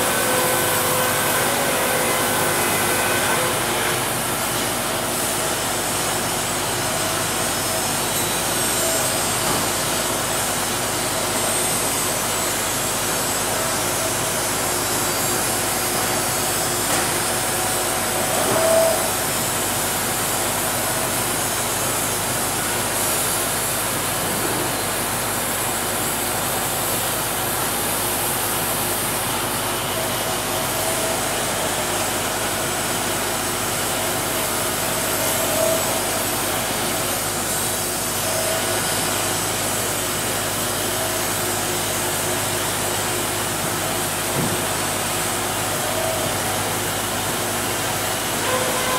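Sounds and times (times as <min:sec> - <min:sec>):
sawmill machinery running: 0:00.0 - 0:48.9.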